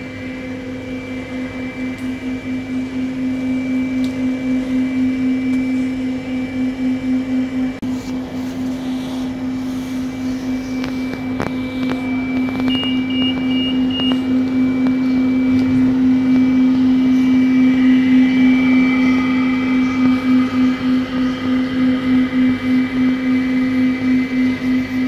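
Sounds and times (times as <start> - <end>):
high whine: 0.0 - 25.0
robot vacuum humming: 7.6 - 25.0
short high beeps: 12.1 - 14.3.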